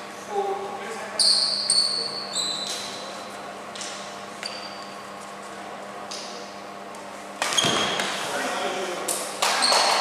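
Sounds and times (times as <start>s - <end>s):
steady low hum: 0.0s - 9.4s
court shoe squeak: 1.2s - 3.1s, 4.4s - 5.1s, 7.4s - 8.2s.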